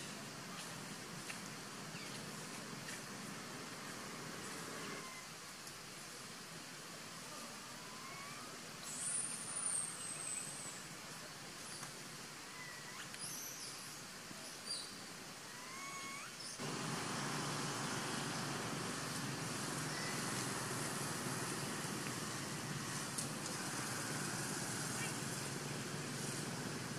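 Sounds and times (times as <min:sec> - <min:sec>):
background hiss: 0:00.0 - 0:26.9
rising chirping calls: 0:14.4 - 0:23.1.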